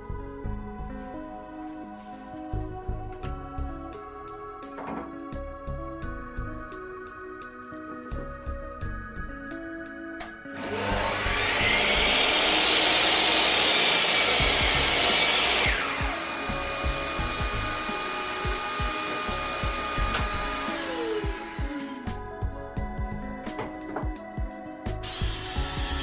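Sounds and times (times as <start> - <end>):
mitre saw cutting wood: 10.6 - 22.2, 25.0 - 26.0.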